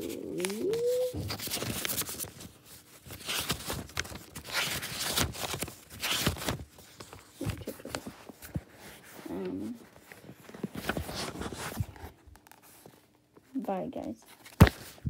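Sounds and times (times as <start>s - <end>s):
book and phone rustling: 0.0s - 15.0s.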